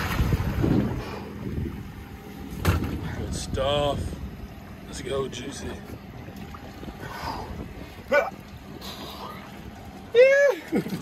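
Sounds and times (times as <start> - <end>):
water splashing: 0.0 - 3.4
wind buffeting microphone: 0.0 - 9.8.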